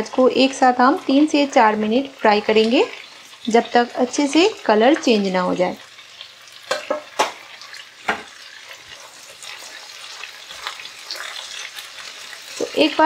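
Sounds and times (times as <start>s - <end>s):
vegetables sizzling in oil: 0.0s - 13.0s
stirring knocks against pan: 6.7s - 7.4s, 8.0s - 8.4s.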